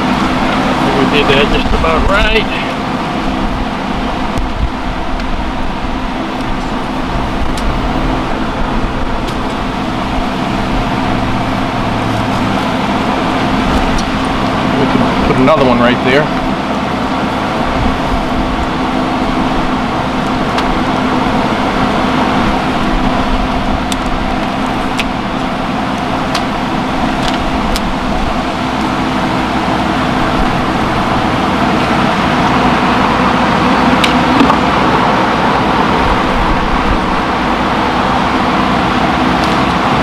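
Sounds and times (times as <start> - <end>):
honeybee colony humming: 0.0 - 40.0.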